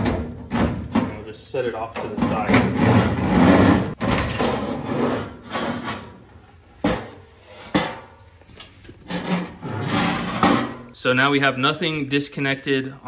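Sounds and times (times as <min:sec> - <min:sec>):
sheet metal scraping: 0:01.8 - 0:08.2, 0:09.0 - 0:11.0.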